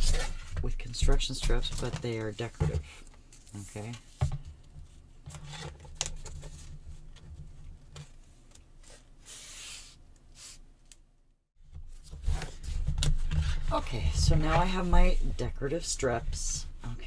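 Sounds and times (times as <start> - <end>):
paper rustling and rubbing: 11.9 - 17.0.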